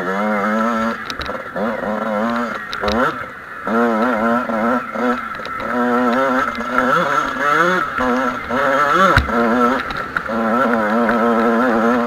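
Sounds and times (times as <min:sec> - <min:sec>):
motocross bike engine revving: 0:00.0 - 0:12.0.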